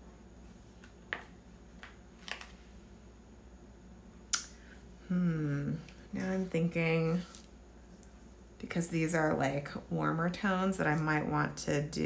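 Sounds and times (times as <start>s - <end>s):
person humming: 5.0s - 5.9s.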